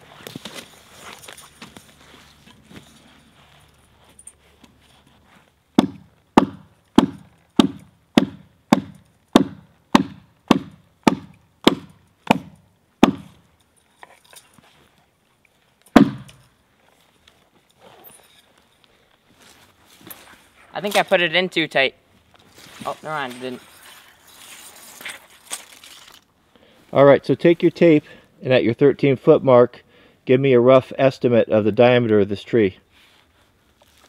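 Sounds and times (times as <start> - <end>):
hatchet chopping log: 5.8 - 13.4, 16.0 - 16.4.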